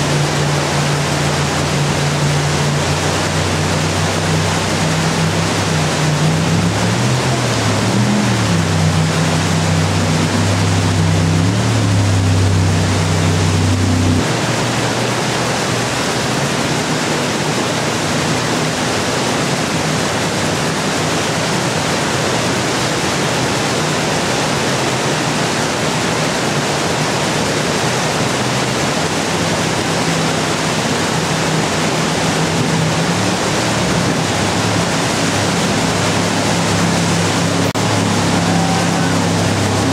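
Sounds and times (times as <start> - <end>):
boat engine droning: 0.0 - 39.9
whitewater rapids rushing: 0.0 - 39.9.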